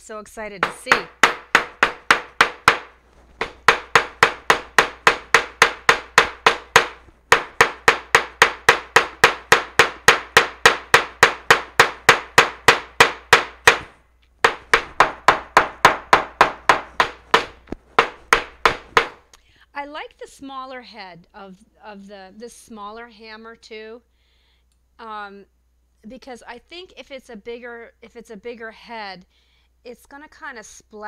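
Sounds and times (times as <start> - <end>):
small hammer tapping on paper: 0.6 - 19.2.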